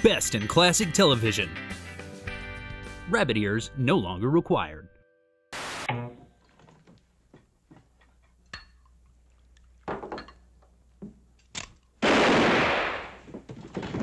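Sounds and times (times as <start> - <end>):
tv static hiss: 5.6 - 5.9.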